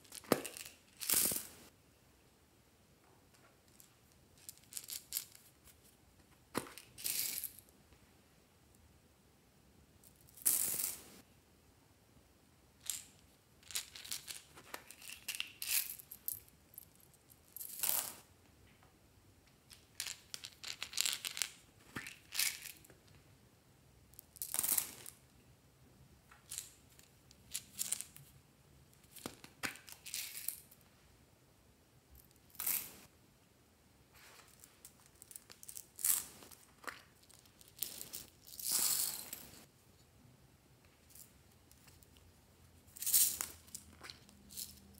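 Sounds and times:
plastic beads clattering into glass bowl: 0:43.0 - 0:44.8.

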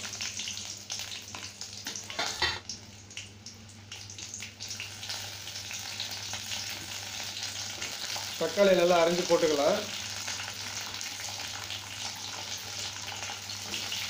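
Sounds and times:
garlic and chillies sizzling in oil: 0:00.0 - 0:14.0.

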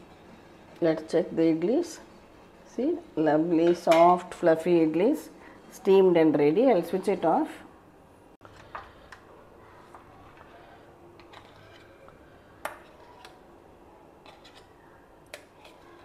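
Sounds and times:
metal spoon scraping steel plate: 0:10.5 - 0:12.0, 0:14.2 - 0:14.8.

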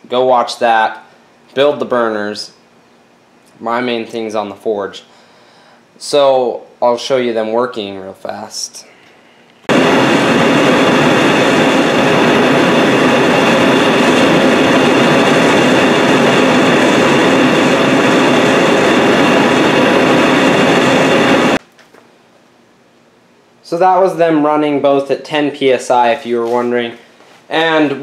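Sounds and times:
propane forge burners roaring: 0:09.6 - 0:21.6, 0:23.6 - 0:28.0.

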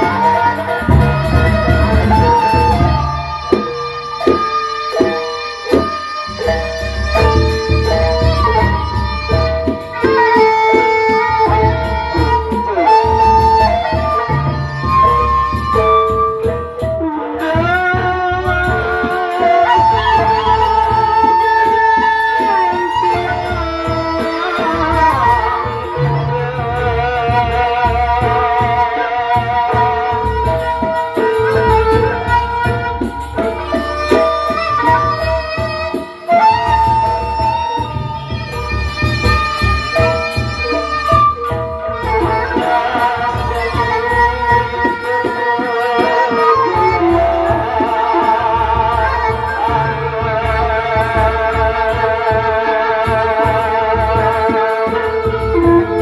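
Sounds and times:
low drum strokes: 0:00.0 - 0:19.8
small cymbals striking: 0:00.0 - 0:26.4
big drums beating: 0:00.0 - 0:56.0
held bending melody: 0:00.0 - 0:56.0
man singing into microphone: 0:17.4 - 0:30.3, 0:41.9 - 0:56.0.

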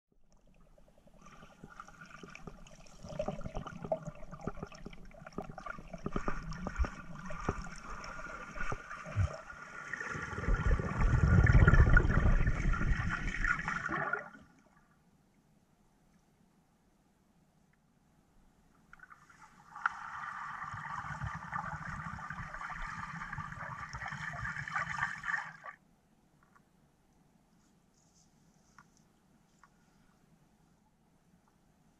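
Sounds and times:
underwater gurgling and bubbling: 0:01.2 - 0:14.4, 0:19.8 - 0:25.6.

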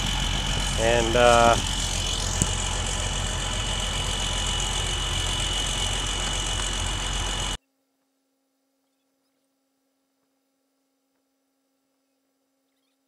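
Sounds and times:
diesel engine idling: 0:00.0 - 0:07.6.

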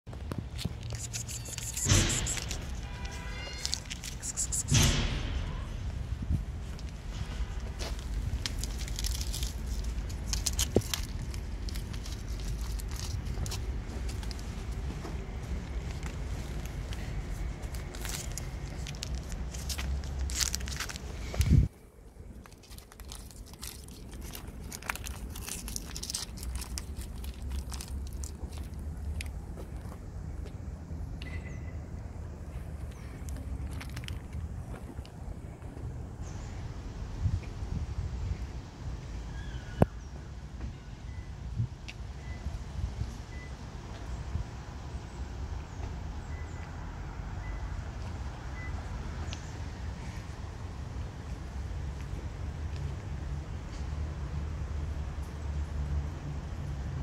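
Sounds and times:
low outdoor rumble: 0:00.1 - 0:57.0
foil pouch crinkling: 0:00.8 - 0:04.7, 0:08.0 - 0:14.8, 0:15.8 - 0:29.4
faint high chirps: 0:01.0 - 0:02.3
loud low thump: 0:01.8 - 0:03.3, 0:04.5 - 0:07.5
cats chewing wet food: 0:08.1 - 0:14.6, 0:21.7 - 0:29.8.

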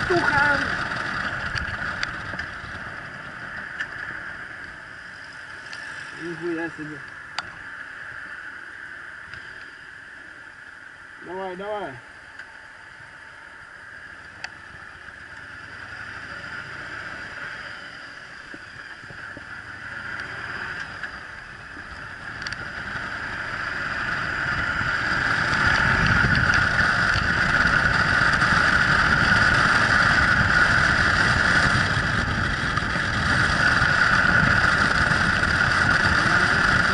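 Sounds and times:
motorcycle engine: 0:00.0 - 0:07.6, 0:13.8 - 0:36.9
wind rush: 0:21.4 - 0:36.9.

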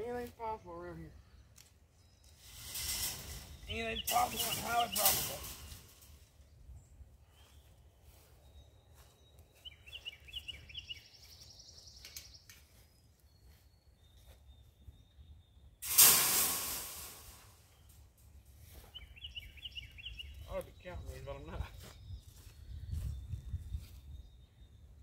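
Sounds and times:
birds chirping faintly: 0:00.0 - 0:25.0
metal wire panel crashing: 0:02.4 - 0:06.2, 0:15.8 - 0:17.5.

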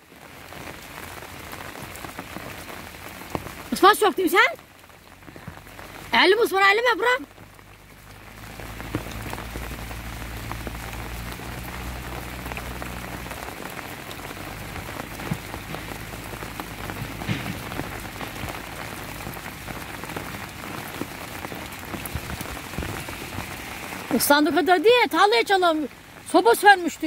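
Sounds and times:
rain on umbrella: 0:00.0 - 0:27.0.

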